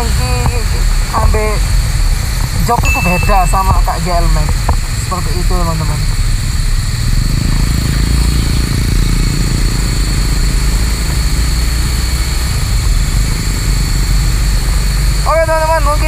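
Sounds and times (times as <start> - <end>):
wind rush on microphone: 0.0 - 16.0
motorcycle engine accelerating: 3.6 - 16.0.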